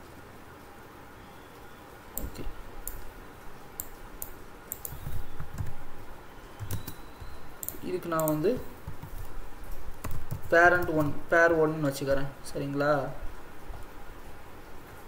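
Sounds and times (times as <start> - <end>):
computer mouse clicks: 2.2 - 3.1, 3.8 - 5.8, 6.6 - 9.4
keyboard keystrokes: 3.8 - 5.8, 6.6 - 9.4.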